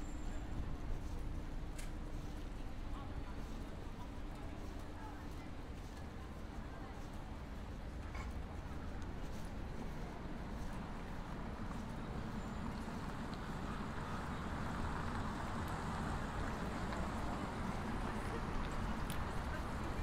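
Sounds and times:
traffic hum: 7.3s - 20.0s.

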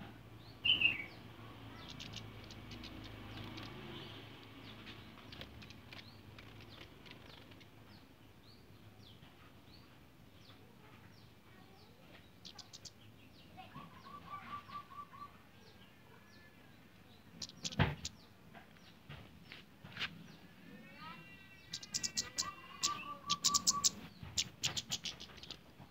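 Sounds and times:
birds chirping: 0.0s - 25.9s
lower repeated bird notes: 0.5s - 7.7s, 17.3s - 18.2s, 21.6s - 25.6s.

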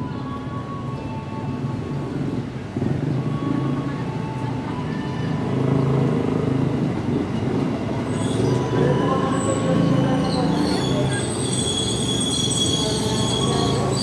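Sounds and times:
electric train rumbling: 0.0s - 14.0s.

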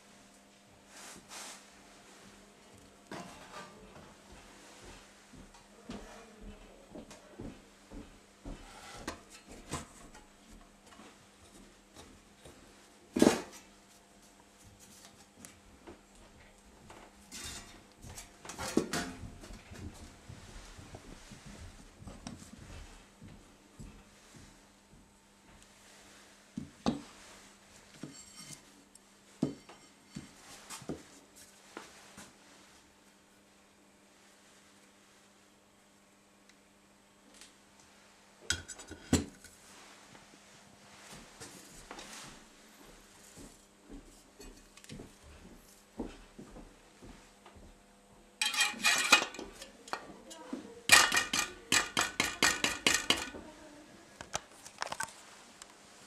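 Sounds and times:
metal parts clinking and scraping: 48.4s - 49.4s
metal parts knocking and clinking: 48.4s - 49.4s, 50.9s - 53.3s.

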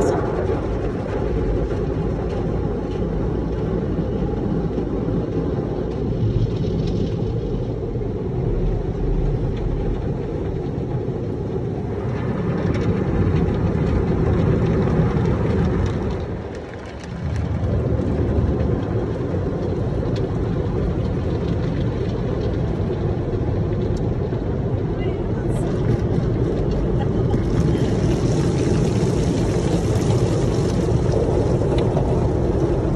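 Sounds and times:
car wash spraying water: 19.0s - 32.9s.

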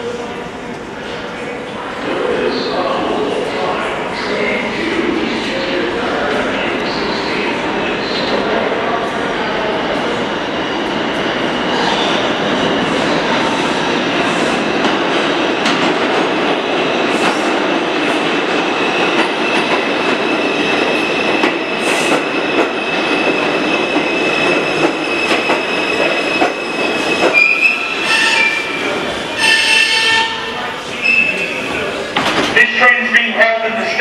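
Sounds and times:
subway train rumbling: 0.0s - 34.0s
rail clacks: 12.8s - 28.5s
high-pitched brake squeal: 25.1s - 28.8s, 29.4s - 31.5s.

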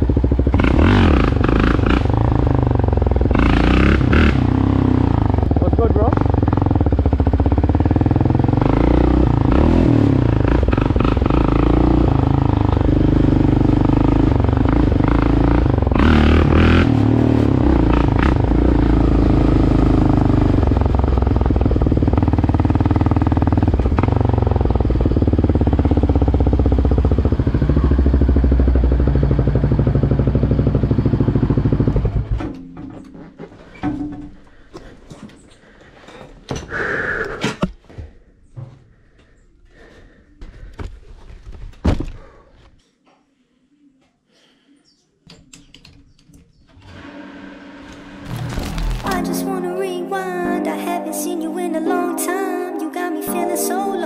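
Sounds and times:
atv engine running: 0.0s - 33.7s, 47.0s - 49.2s.

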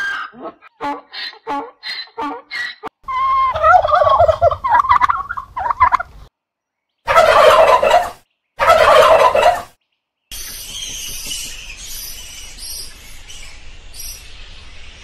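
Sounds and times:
turkey gobbling: 0.0s - 6.3s, 7.1s - 9.7s.

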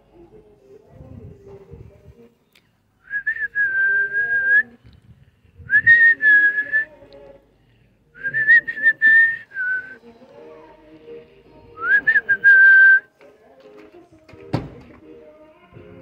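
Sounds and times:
person whistling: 3.0s - 4.7s, 5.6s - 6.9s, 8.2s - 10.0s, 11.8s - 13.1s.

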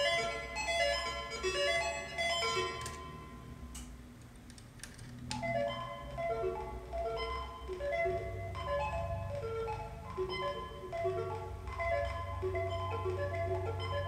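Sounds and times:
patch cables clicking: 3.7s - 5.5s
synth bleeping notes: 5.4s - 14.0s.

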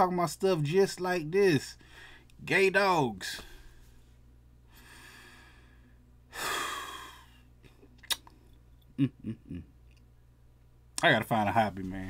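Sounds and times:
man breathing in: 1.8s - 2.3s, 4.7s - 7.4s
man sighing: 6.3s - 7.4s.

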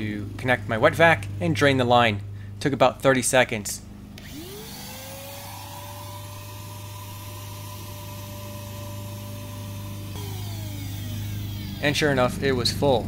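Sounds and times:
shop vacuum motor whine: 4.2s - 12.4s.

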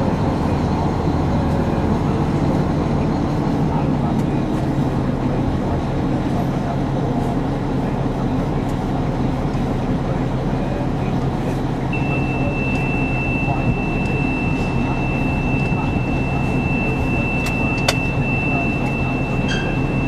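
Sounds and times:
diesel engine idling: 0.0s - 20.0s
thin high-pitched tone: 12.0s - 20.0s.

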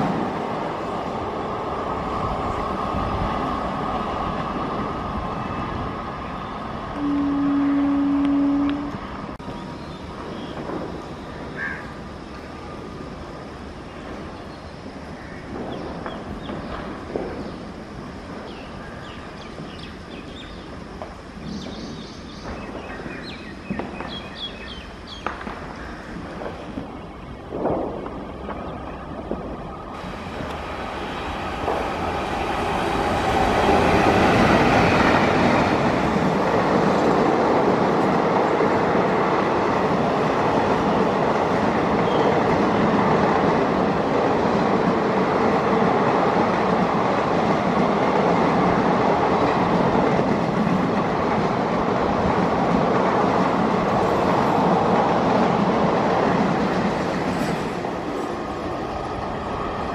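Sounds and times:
train passing at speed: 0.0s - 59.9s
wheels clattering on rails: 30.0s - 59.9s.

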